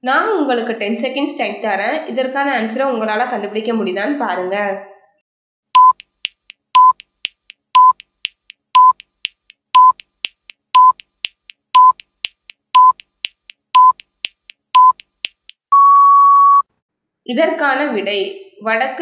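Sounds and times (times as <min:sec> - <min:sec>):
short beeps: 0:05.8 - 0:06.0, 0:06.8 - 0:07.0, 0:07.8 - 0:08.0, 0:08.8 - 0:09.0, 0:09.8 - 0:10.0, 0:10.8 - 0:11.0, 0:11.8 - 0:12.0, 0:12.8 - 0:13.0, 0:13.8 - 0:14.0, 0:14.8 - 0:15.0, 0:15.7 - 0:16.7
clock-like ticks: 0:05.8 - 0:15.7.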